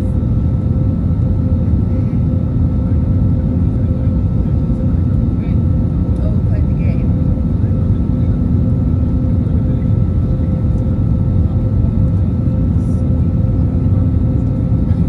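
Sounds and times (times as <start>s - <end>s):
rumble of engines and airflow: 0.0s - 15.0s.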